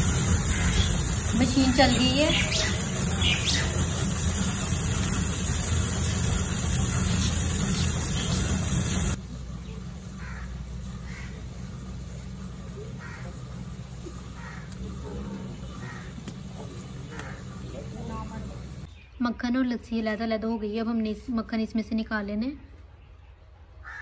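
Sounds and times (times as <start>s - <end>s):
electric churn motor running: 0.0s - 18.9s
crows cawing: 0.1s - 1.2s, 10.1s - 11.8s, 12.8s - 17.6s.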